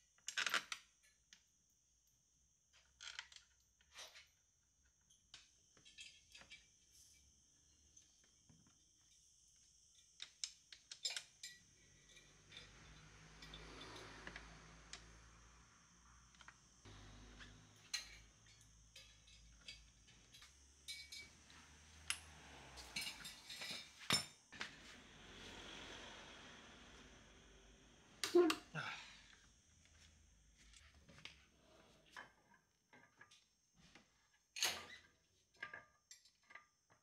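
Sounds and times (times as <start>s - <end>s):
steel tools clinking on metal: 17.3s - 21.4s, 22.8s - 24.4s.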